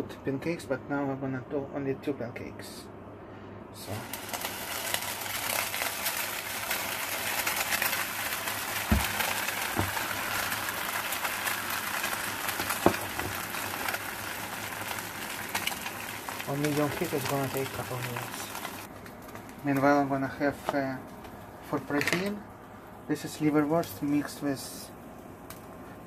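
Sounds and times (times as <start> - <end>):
batter sizzling in frying pan: 3.8 - 22.4.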